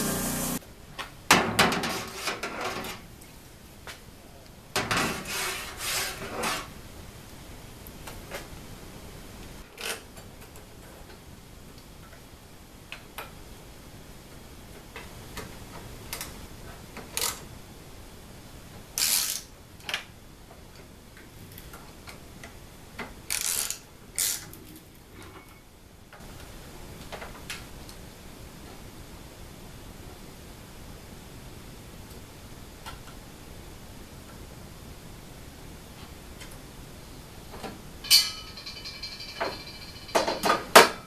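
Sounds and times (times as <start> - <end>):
metal clanks: 38.0 - 41.0.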